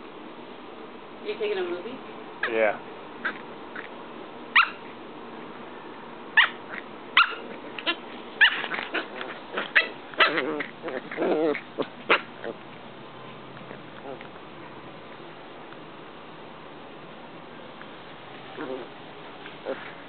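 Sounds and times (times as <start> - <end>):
puppies yipping and barking: 4.6 - 4.9, 6.4 - 12.7.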